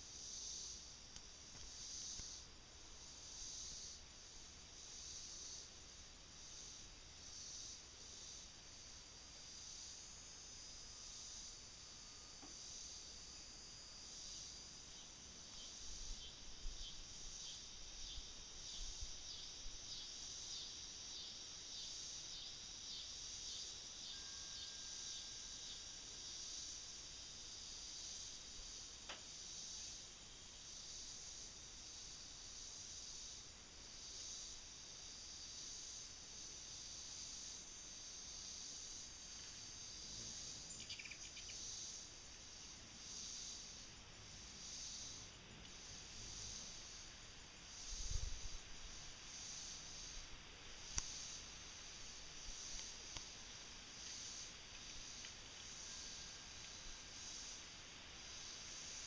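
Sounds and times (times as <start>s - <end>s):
insects chirping: 0.0s - 59.0s
sharp chirps: 40.7s - 41.6s
wind rumble on microphone: 48.0s - 48.6s.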